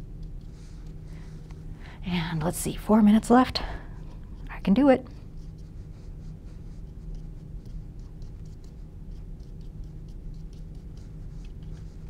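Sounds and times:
steady low hum: 0:00.0 - 0:12.0
paintbrush scratching on canvas: 0:04.3 - 0:12.0.

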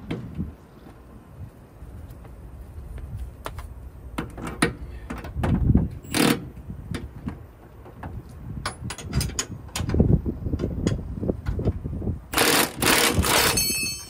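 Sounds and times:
metal clicks and knocks: 0:06.2 - 0:10.0
impact wrench burst: 0:12.3 - 0:14.0.

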